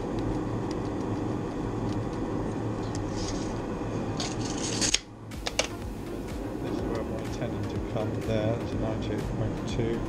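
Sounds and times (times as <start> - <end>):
workshop machinery drone: 0.0 - 10.0.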